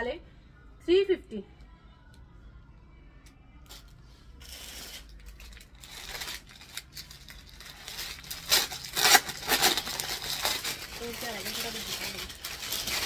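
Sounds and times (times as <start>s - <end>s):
plastic packaging rustling: 4.4s - 13.0s.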